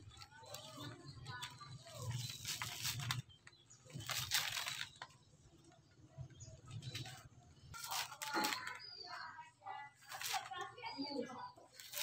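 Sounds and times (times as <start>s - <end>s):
coconut husk fibre tearing: 0.0s - 5.2s, 6.8s - 8.9s, 10.0s - 10.7s, 11.7s - 12.0s.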